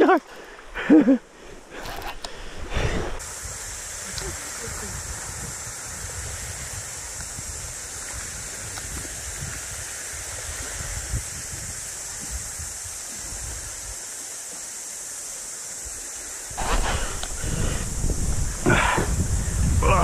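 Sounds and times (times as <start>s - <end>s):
small waves on sand: 0.0s - 20.0s
wind buffeting microphone: 2.6s - 14.0s, 16.5s - 20.0s.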